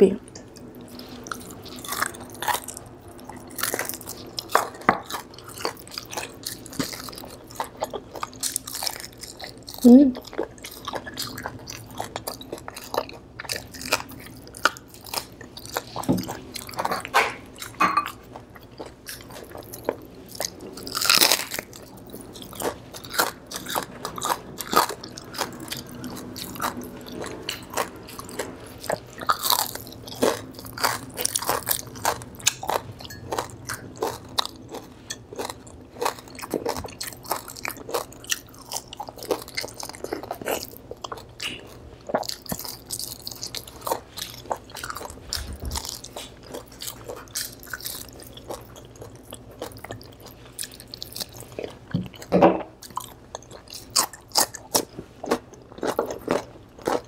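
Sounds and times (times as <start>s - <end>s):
person crunching crispy food: 18.6s - 51.8s.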